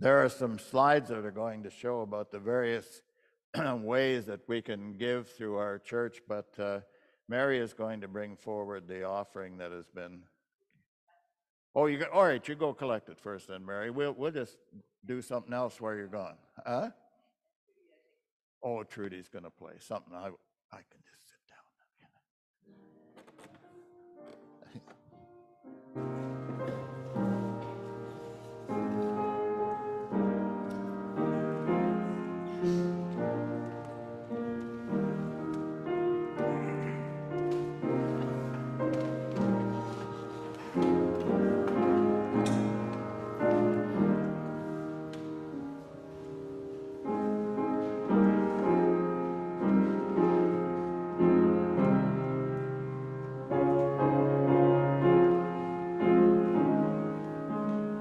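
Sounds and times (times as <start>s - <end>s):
slow quiet solo piano: 26.0s - 58.0s.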